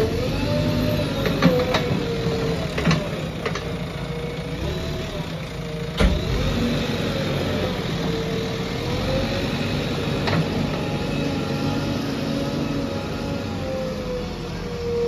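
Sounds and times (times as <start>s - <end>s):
diesel engine under load: 0.0s - 15.0s.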